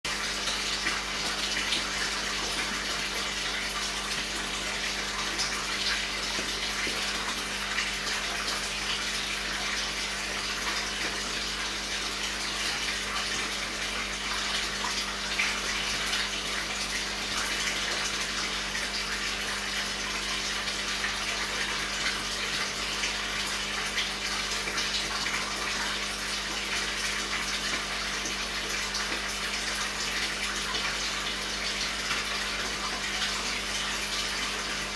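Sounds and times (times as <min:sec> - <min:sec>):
aquarium water splashing: 0:00.0 - 0:34.9.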